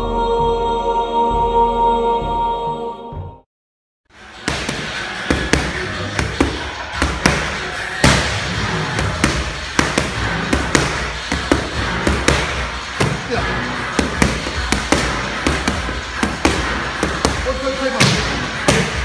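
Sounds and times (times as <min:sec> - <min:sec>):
boxing gloves hitting focus mitts: 0:04.4 - 0:08.4, 0:09.0 - 0:19.0.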